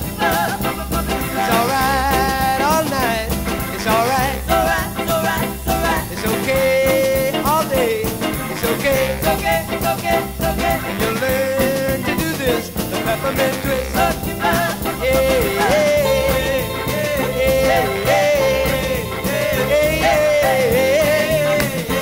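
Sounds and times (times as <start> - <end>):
upbeat rock and roll music: 0.0 - 22.0.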